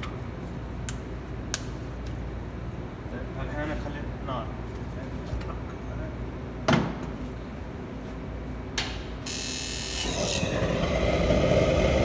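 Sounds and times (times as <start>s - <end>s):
gas flame roaring: 9.2s - 12.0s.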